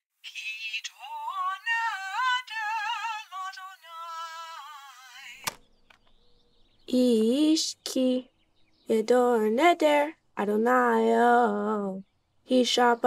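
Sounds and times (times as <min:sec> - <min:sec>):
woman singing high unaccompanied: 0:00.3 - 0:05.4, 0:06.9 - 0:13.0
sharp click: 0:05.4 - 0:06.2.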